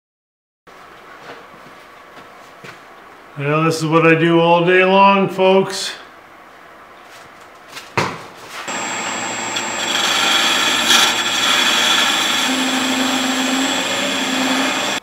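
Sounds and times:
drill bit scraping wood: 0:08.7 - 0:15.0
wood lathe whining: 0:08.7 - 0:15.0.

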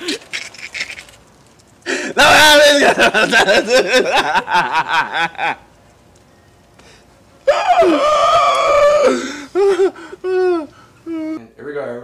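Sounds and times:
man laughing: 0:01.9 - 0:05.6, 0:09.1 - 0:11.4.

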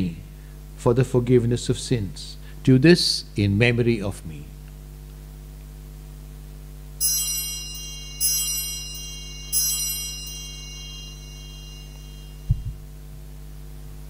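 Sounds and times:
low electrical hum: 0:00.0 - 0:14.0
bell ringing: 0:07.0 - 0:12.8.

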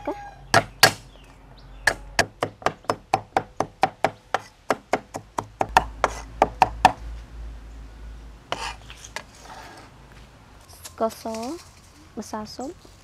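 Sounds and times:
cleaver chopping on wooden board: 0:00.6 - 0:01.0, 0:01.9 - 0:07.0.

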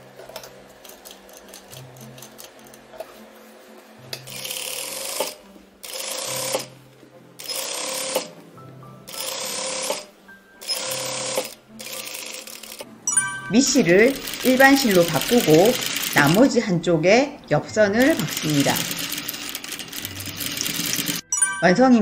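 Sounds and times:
sewing machine stitching: 0:04.3 - 0:06.7, 0:07.4 - 0:08.3, 0:09.1 - 0:12.8, 0:14.1 - 0:16.6, 0:18.0 - 0:21.2.

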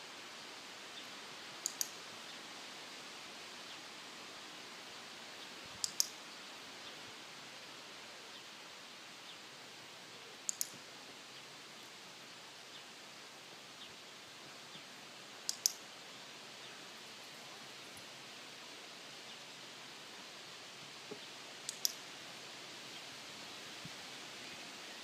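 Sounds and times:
steady hiss: 0:00.0 - 0:25.0
clicker double clicks: 0:01.6 - 0:01.9, 0:10.5 - 0:10.8, 0:15.5 - 0:15.8, 0:21.7 - 0:22.0.

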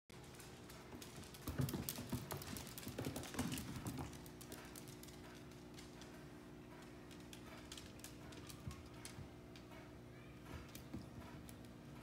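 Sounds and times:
dog claws scrabbling on hardwood floor: 0:00.2 - 0:06.0.

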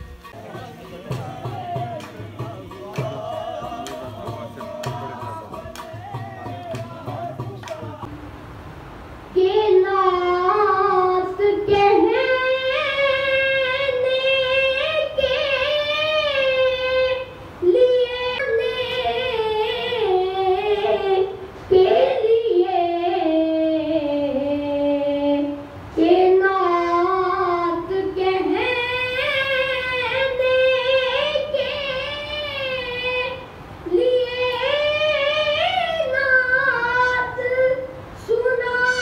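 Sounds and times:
boy singing into a microphone: 0:09.3 - 0:39.0.

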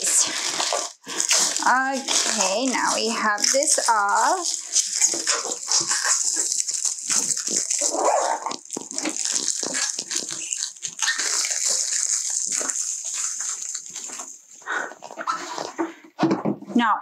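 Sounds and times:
plastic wrap crinkling: 0:00.0 - 0:15.9.

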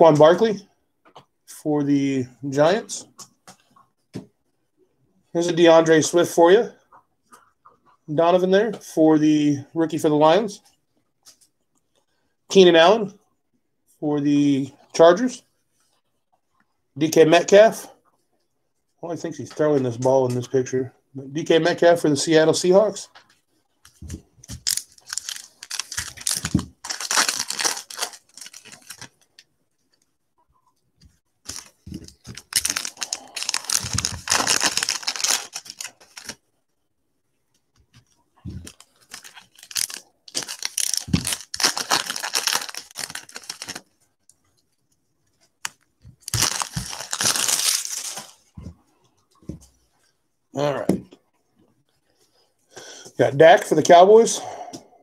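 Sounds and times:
foil wrapper tearing and crinkling: 0:24.5 - 0:29.3, 0:31.5 - 0:36.4, 0:38.7 - 0:43.8, 0:45.6 - 0:48.4.

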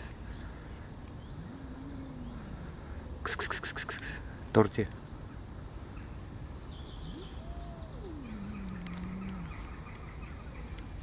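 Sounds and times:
faint bird chirps: 0:00.0 - 0:04.4, 0:06.0 - 0:11.0
cat yowling: 0:07.1 - 0:09.6.

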